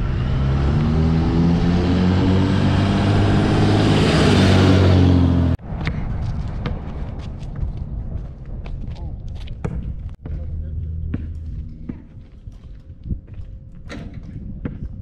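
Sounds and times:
pickup truck driving past: 0.0 - 5.6
basketball bouncing on asphalt: 5.6 - 15.0.

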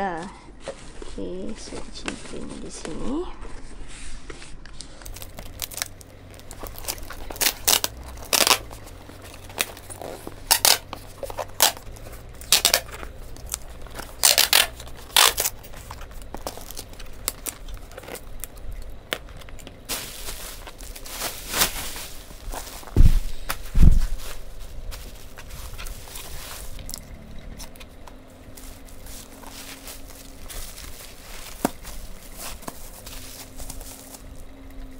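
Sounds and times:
bubble wrap rustling: 0.6 - 34.9
packing tape ripping off roll: 5.0 - 27.0.

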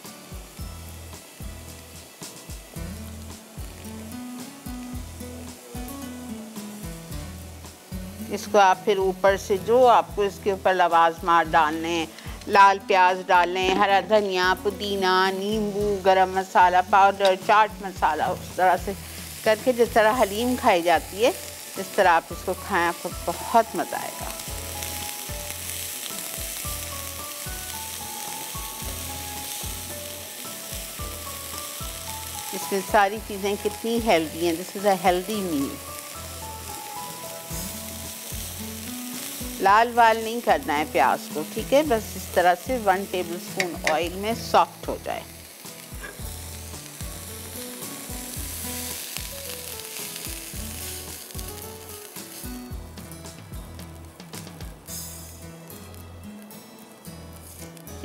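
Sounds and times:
onions sizzling in a frying pan: 0.0 - 58.0
soft background music: 0.0 - 58.0.

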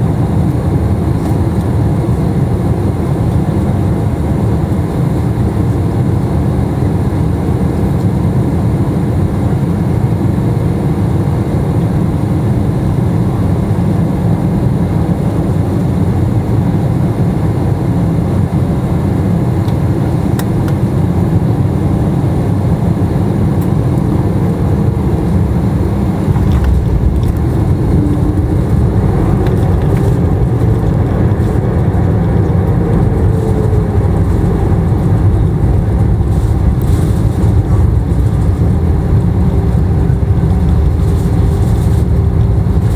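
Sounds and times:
low rumble of engines and airflow: 0.0 - 42.9
plane rolling on runway: 0.0 - 42.9
faint gliding engine tones: 21.4 - 42.9.

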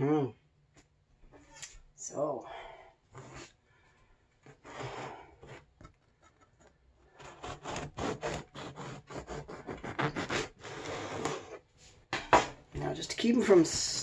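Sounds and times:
bread knife sawing through loaf: 3.2 - 3.5, 4.4 - 5.7, 7.1 - 11.6.

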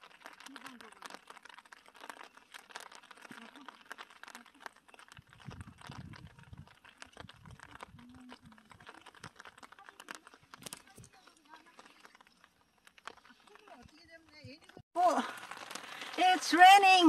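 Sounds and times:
faint dense crackling: 0.0 - 17.0
wind rumble on microphone: 5.2 - 9.4.

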